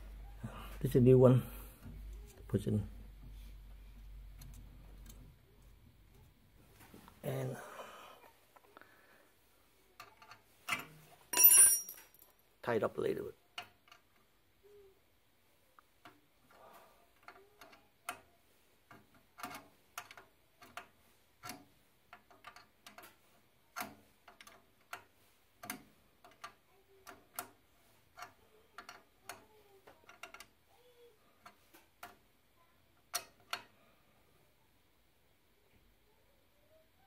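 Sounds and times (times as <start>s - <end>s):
wrench clicking on a nut: 30.1s - 30.5s.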